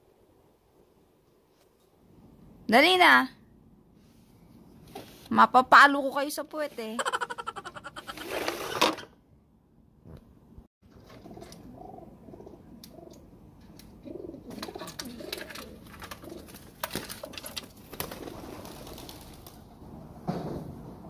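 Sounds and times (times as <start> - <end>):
pigeons cooing: 11.1 - 13.2, 13.9 - 16.7.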